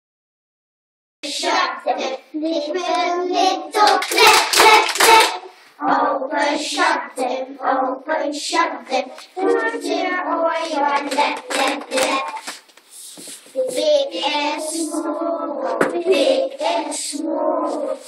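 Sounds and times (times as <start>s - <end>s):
children singing: 1.2s - 12.5s, 13.5s - 18.0s
hands clapping: 3.8s - 5.4s, 10.9s - 13.9s.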